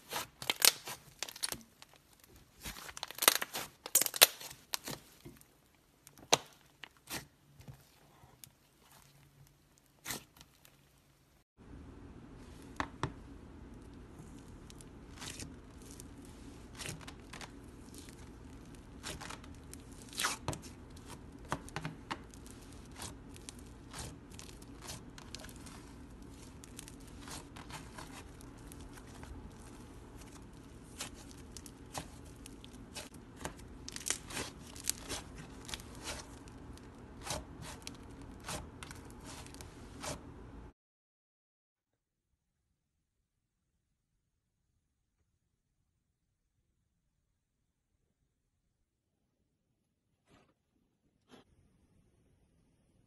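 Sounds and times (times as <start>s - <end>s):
slime crackling and popping: 0.0s - 5.4s, 13.7s - 40.2s.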